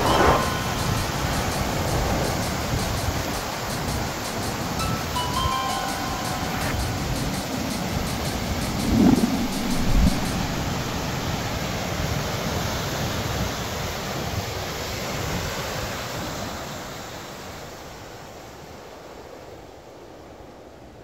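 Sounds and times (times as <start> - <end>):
steady rushing noise: 0.0 - 12.6.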